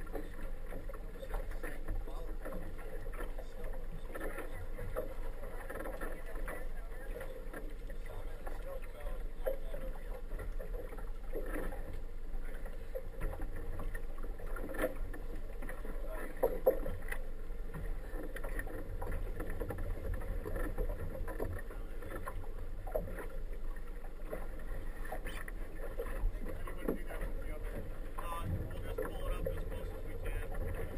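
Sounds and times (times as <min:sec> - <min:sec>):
outboard motor rumbling: 0:00.0 - 0:30.9
water sloshing against hull: 0:00.0 - 0:30.9.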